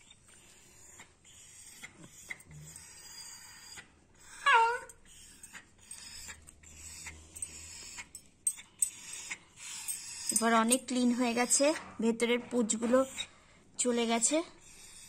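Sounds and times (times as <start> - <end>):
dog yelping: 2.2 - 5.0.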